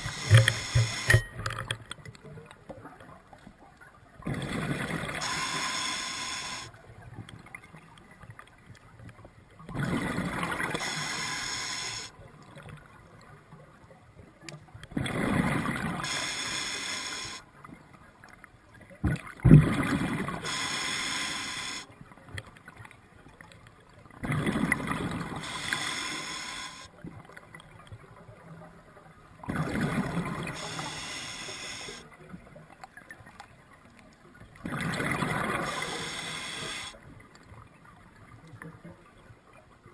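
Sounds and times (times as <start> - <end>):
diver inhaling through regulator: 0.0 - 1.3, 5.2 - 6.7, 10.7 - 12.1, 16.0 - 17.4, 20.4 - 21.9, 25.4 - 26.9, 30.5 - 32.0, 35.6 - 37.0.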